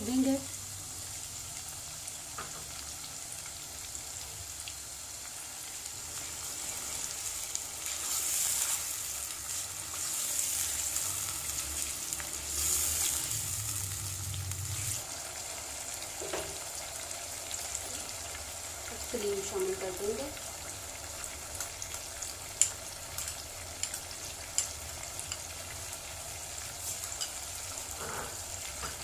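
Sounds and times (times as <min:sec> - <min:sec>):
chicken sizzling in hot oil: 0:00.0 - 0:29.0
spatula stirring in a pot: 0:06.1 - 0:13.4.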